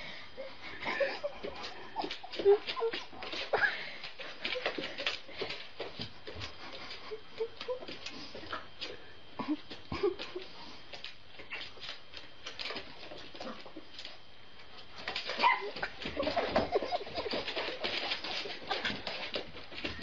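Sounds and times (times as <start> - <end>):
dog whining: 15.4 - 17.0.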